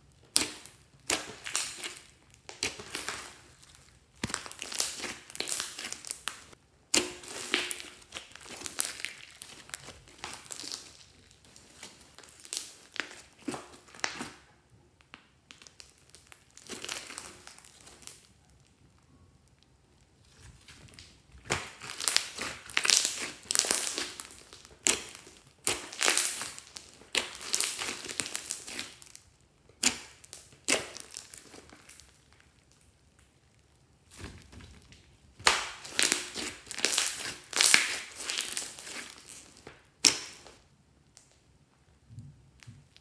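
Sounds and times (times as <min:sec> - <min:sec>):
slime squishing and crackling: 0:00.0 - 0:41.4
sharp slime pops: 0:29.8 - 0:31.6, 0:35.4 - 0:39.1, 0:40.0 - 0:40.6.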